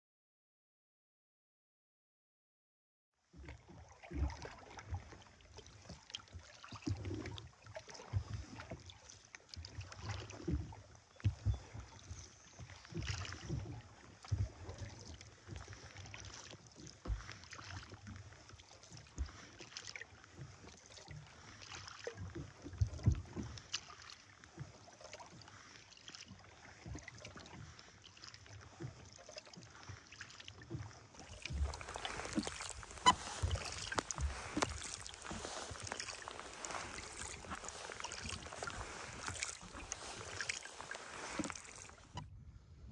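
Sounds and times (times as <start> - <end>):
paddle splashing water: 3.3 - 42.3
paddle stroke thuds: 31.3 - 42.2.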